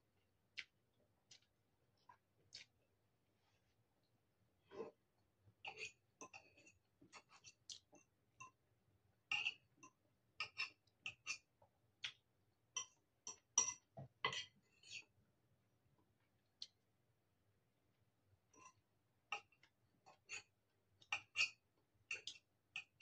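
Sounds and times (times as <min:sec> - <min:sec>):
chewing: 0:00.5 - 0:02.8
fork clinking against porcelain bowl: 0:09.3 - 0:11.4, 0:12.8 - 0:15.0, 0:20.1 - 0:23.0.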